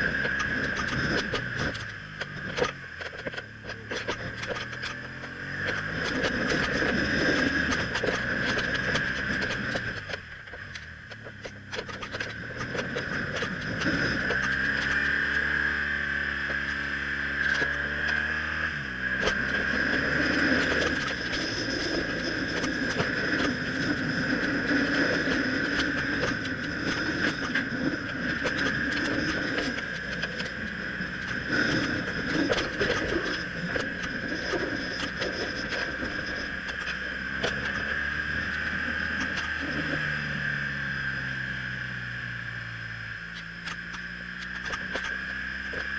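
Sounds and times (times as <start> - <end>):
wind noise: 0.0 - 2.9, 3.7 - 10.3, 17.8 - 40.3
motorcycle engine running: 0.0 - 45.9.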